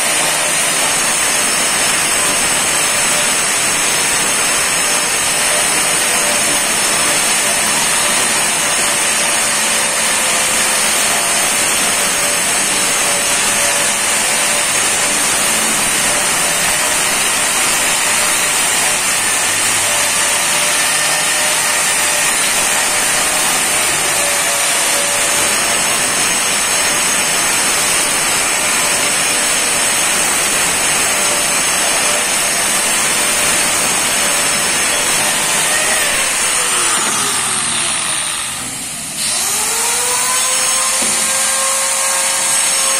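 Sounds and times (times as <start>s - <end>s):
angle grinder grinding stone: 0.0s - 42.9s.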